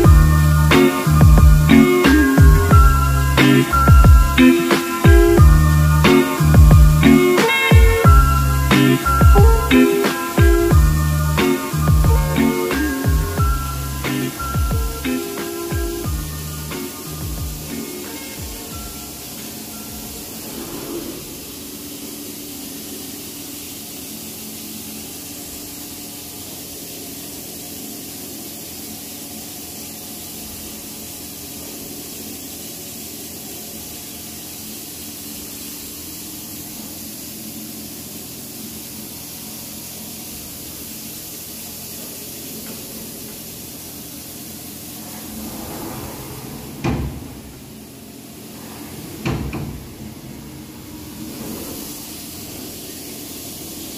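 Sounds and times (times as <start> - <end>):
coolant spray hiss: 0.0 - 53.9.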